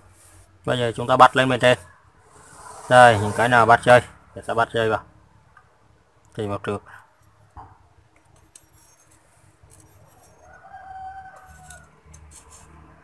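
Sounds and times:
rooster crowing: 10.4 - 12.0
wires clicking and rustling: 11.4 - 12.7.

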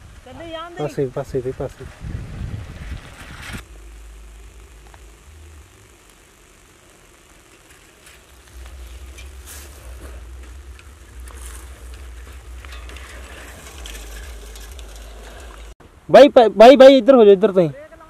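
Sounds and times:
wind rumbling on microphone: 0.0 - 3.7
faint crackling hiss: 0.0 - 18.0.

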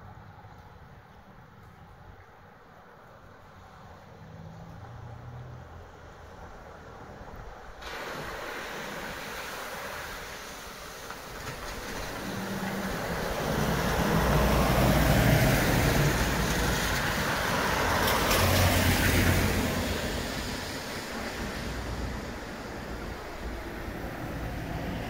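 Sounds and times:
tyres hissing through water: 7.7 - 25.0
vehicle engines humming: 11.4 - 25.0.

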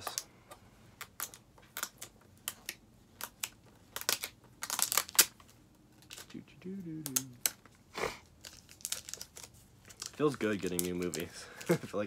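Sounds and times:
plastic wrap crinkling and tearing: 1.0 - 12.0.

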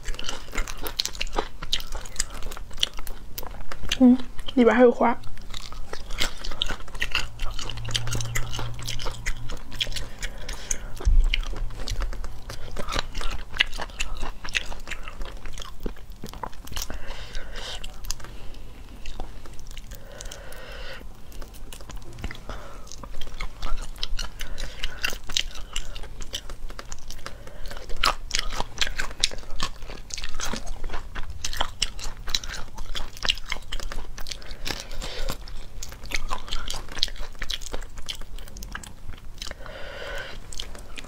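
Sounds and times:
chewing shrimp shell-on: 0.0 - 4.6, 5.2 - 41.0.

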